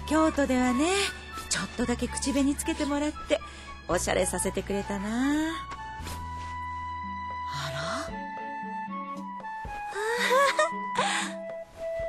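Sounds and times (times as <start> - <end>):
gentle background music: 0.0 - 12.0
breathy rising exclamation: 7.5 - 8.2.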